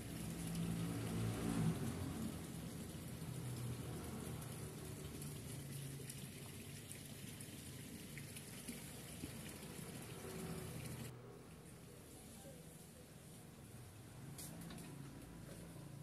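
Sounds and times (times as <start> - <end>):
running water hiss: 0.0 - 11.1.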